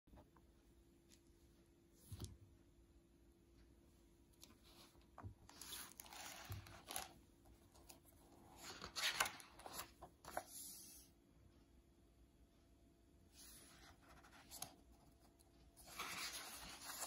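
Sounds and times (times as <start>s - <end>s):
book pages turning: 4.4s - 11.0s, 13.4s - 17.0s.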